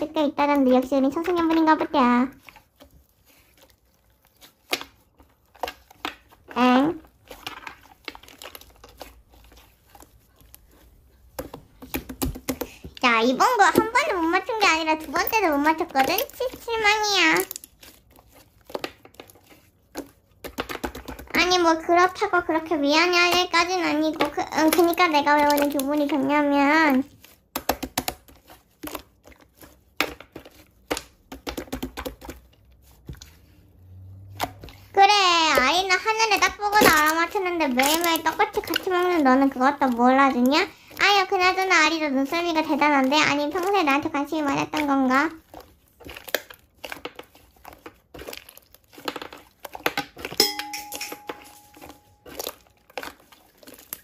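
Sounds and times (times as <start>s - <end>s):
slime squeezed with sticky crackles: 0.0s - 50.4s, 51.6s - 54.0s
chime-like ring: 50.4s - 52.1s.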